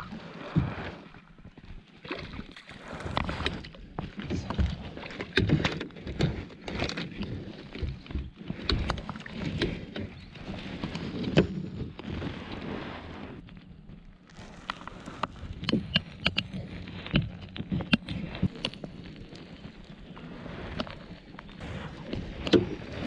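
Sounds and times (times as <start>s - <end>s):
knocks and clatter on kayak: 0.0s - 13.3s, 20.1s - 23.0s
water noise: 0.0s - 23.0s.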